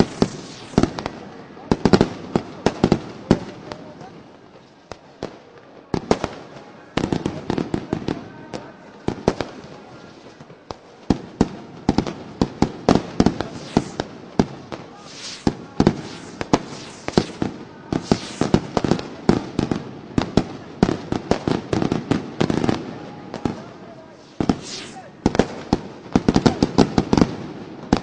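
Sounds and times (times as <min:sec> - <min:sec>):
hissing crackle: 0:00.0 - 0:01.6, 0:13.1 - 0:19.3, 0:24.1 - 0:26.3
fireworks bangs and pops: 0:00.0 - 0:04.1, 0:09.1 - 0:28.0.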